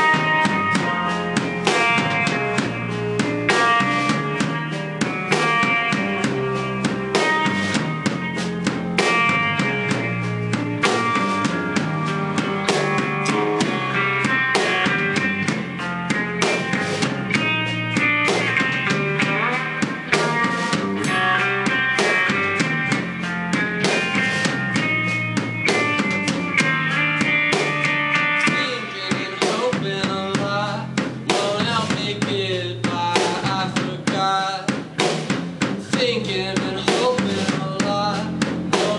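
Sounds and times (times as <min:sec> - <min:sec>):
drum kit beat: 0:00.0 - 0:38.9
electric guitars: 0:00.0 - 0:38.9.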